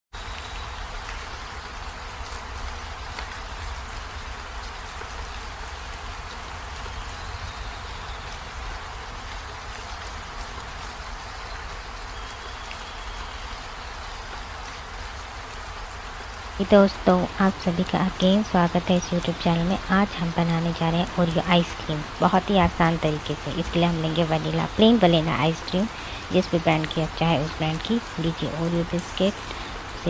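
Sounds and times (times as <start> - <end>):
background hiss: 0.2 - 30.0.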